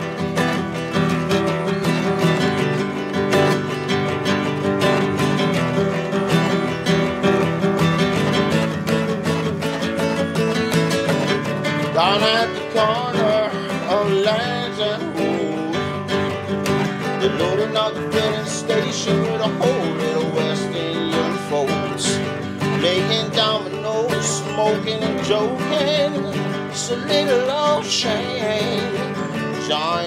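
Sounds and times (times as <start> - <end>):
classical guitar strumming: 0.0 - 30.0
man singing: 11.7 - 30.0.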